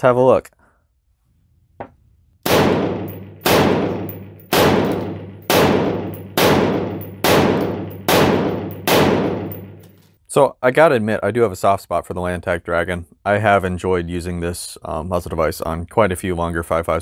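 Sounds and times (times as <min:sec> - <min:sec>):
rifle shots: 0:02.4 - 0:10.0
ringing echo: 0:02.6 - 0:10.0.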